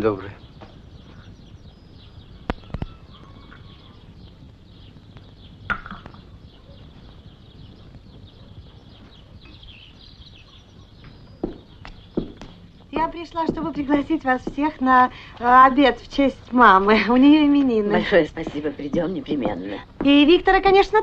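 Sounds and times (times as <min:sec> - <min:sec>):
small birds chirping: 0:00.0 - 0:21.0
sharp knocks: 0:05.7 - 0:06.2, 0:11.0 - 0:14.8.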